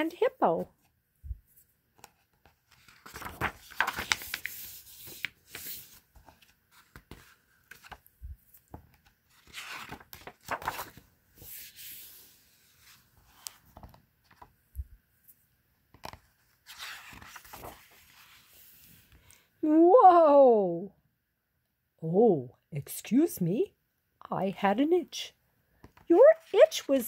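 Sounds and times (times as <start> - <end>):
book pages turning: 1.5 - 14.6, 15.9 - 19.2.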